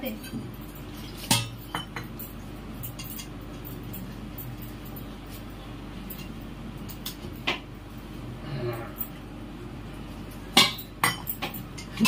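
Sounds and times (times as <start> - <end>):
steady low hum: 0.0 - 12.0
tableware clinking: 0.6 - 5.1, 10.5 - 12.0.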